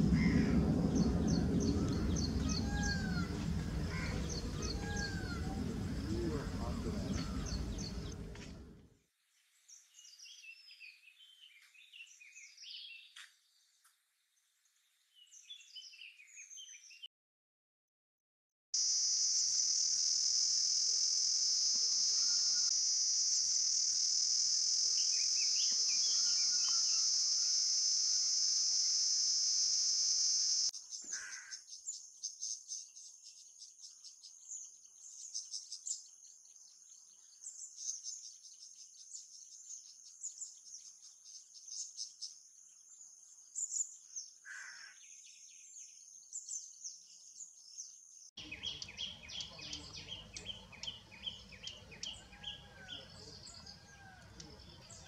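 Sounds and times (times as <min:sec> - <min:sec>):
pulsing insect chirps: 0:00.0 - 0:08.4, 0:18.8 - 0:30.7
birdsong: 0:00.0 - 0:08.8, 0:23.8 - 0:27.8, 0:30.2 - 0:55.0
low background rumble: 0:00.0 - 0:08.8
high-pitched insect trill: 0:18.8 - 0:30.7.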